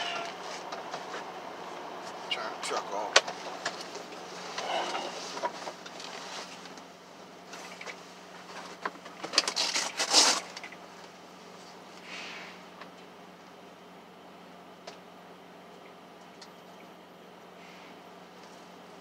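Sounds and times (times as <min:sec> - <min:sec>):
small objects rustling and clattering: 0:07.5 - 0:10.7.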